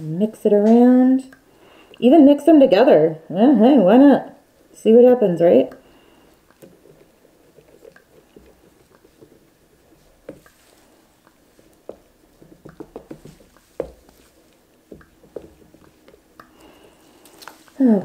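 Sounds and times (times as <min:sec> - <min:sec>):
plastic stick tapping in resin: 0:11.8 - 0:14.2, 0:14.9 - 0:16.6.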